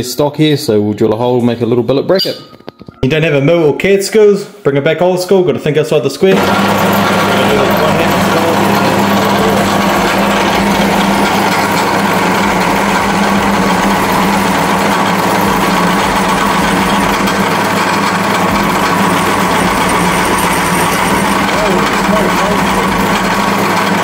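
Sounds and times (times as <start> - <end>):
electric drill boring into steel: 6.3 - 24.0.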